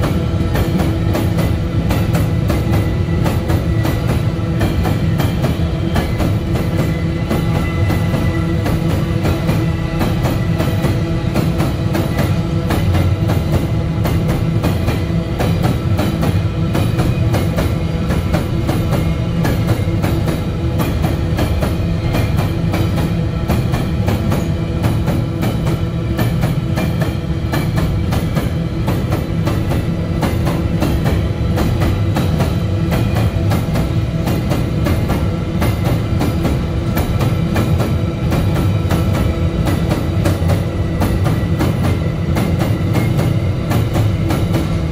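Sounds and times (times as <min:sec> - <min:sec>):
train wheels clattering over rails: 0:00.0 - 0:44.9
steady ringing tone: 0:02.4 - 0:13.6.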